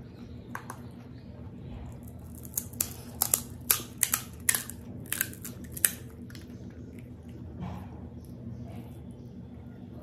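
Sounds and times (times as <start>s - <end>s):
crisp shells cracking: 2.0s - 7.1s.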